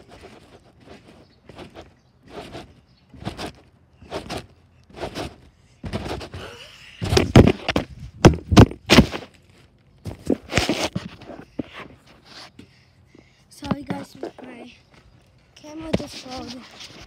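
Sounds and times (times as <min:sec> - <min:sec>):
trampoline mat thumping: 0:00.8 - 0:09.3.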